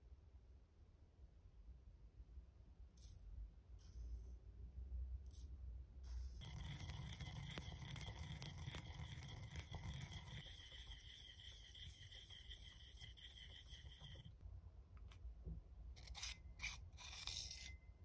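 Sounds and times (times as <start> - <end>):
pestle grinding seeds in bowl: 6.4 - 14.4.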